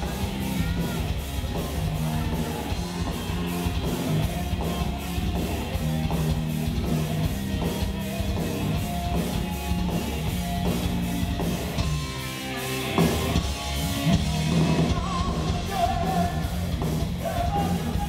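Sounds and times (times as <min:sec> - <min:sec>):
live heavy metal band: 0:00.0 - 0:18.0
person singing: 0:14.7 - 0:16.6, 0:17.2 - 0:18.0.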